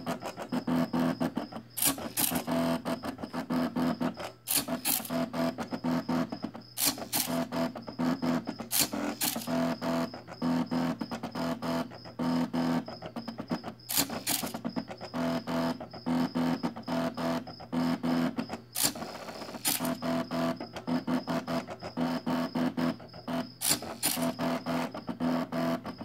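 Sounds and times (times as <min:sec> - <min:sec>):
small clicks: 0:08.7 - 0:09.5, 0:13.9 - 0:14.6, 0:18.8 - 0:20.0, 0:23.6 - 0:24.4.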